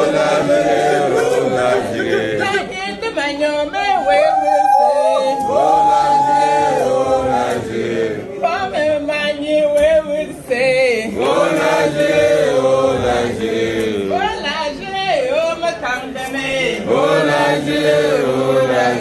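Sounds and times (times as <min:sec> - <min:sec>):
group of voices singing: 0:00.0 - 0:03.0, 0:05.0 - 0:09.1, 0:09.7 - 0:14.4, 0:16.0 - 0:19.0.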